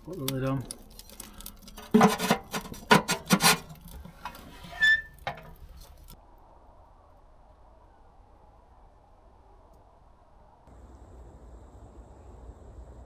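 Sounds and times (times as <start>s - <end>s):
metal lid scraping on stove: 1.7s - 6.1s.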